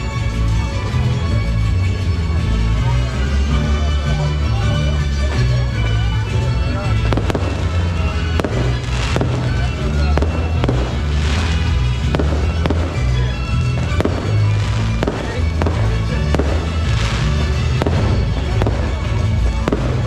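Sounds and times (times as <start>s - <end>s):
fireworks bursting: 6.9s - 20.0s.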